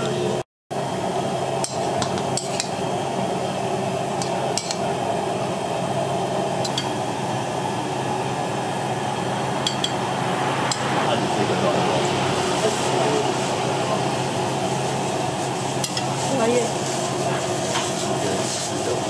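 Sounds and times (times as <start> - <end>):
low hum: 1.1 - 16.2
dishes and utensils clinking: 6.6 - 7.0, 9.6 - 10.0.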